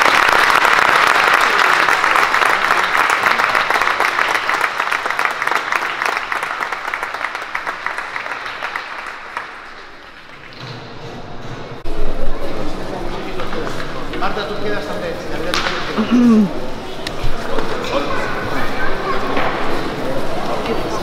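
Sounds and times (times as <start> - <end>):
audience applause: 0.0 - 10.5.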